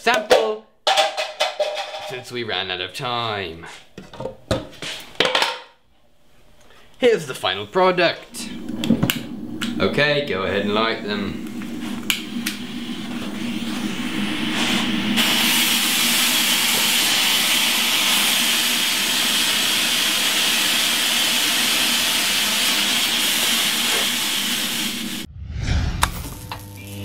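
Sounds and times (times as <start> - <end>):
rocket fuel burning with hiss: 8.4 - 25.3.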